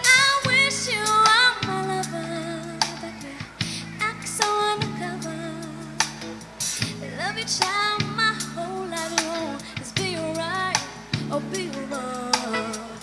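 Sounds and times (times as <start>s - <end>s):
song with female vocal: 0.0s - 13.0s.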